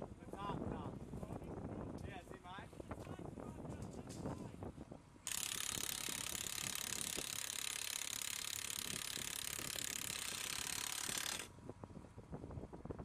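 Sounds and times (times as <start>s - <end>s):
mechanical ratcheting clatter: 5.3s - 11.5s.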